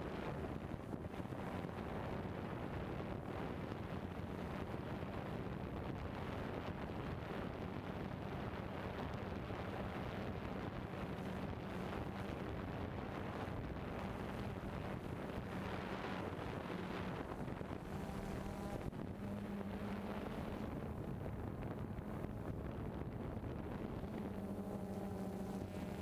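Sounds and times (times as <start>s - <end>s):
wind hiss on microphone: 0.0s - 26.0s
drone motors humming: 8.8s - 26.0s.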